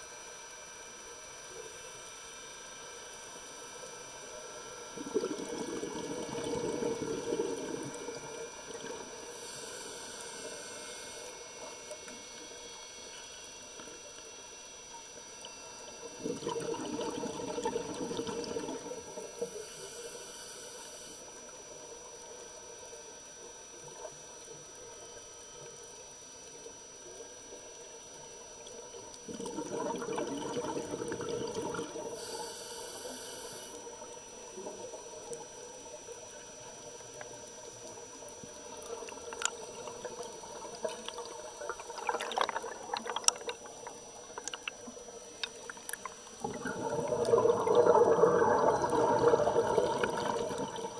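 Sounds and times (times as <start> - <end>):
faint steady hum: 0.0 - 50.9
bubbles gurgling underwater: 5.0 - 9.2, 16.0 - 19.4, 28.9 - 32.2, 38.6 - 50.9.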